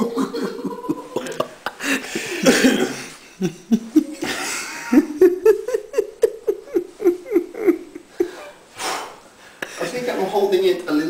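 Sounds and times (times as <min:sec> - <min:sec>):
person laughing hard: 0:00.0 - 0:08.6.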